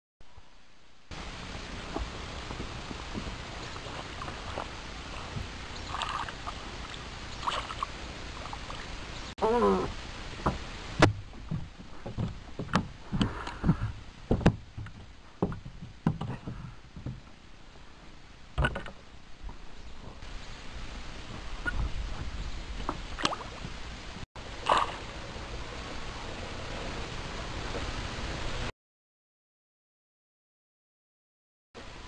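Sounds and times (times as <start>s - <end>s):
knocks and thumps in a boat: 10.4s - 17.4s, 18.6s - 19.0s.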